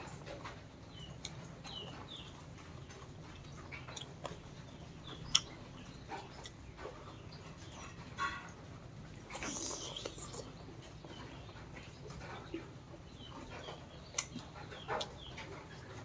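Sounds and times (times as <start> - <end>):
person chewing: 3.4 - 5.6, 9.2 - 10.6, 14.1 - 14.4.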